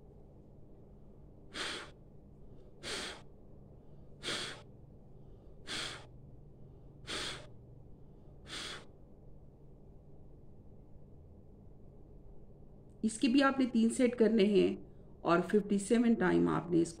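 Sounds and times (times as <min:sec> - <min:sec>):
woman's forceful exhalations: 0:01.5 - 0:02.0, 0:02.8 - 0:03.3, 0:04.2 - 0:04.7, 0:05.6 - 0:06.1, 0:07.0 - 0:07.5.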